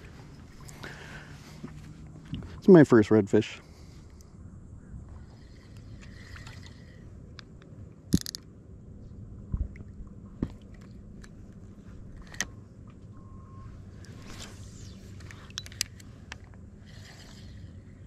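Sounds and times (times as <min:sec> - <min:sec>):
low steady rumble: 0:00.0 - 0:18.0
fishing reel clicks and knocks: 0:08.1 - 0:08.5, 0:12.2 - 0:12.5, 0:15.2 - 0:16.5.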